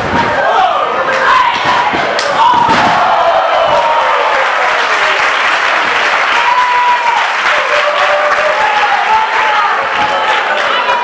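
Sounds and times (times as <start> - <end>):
audience clapping: 3.6 - 11.0.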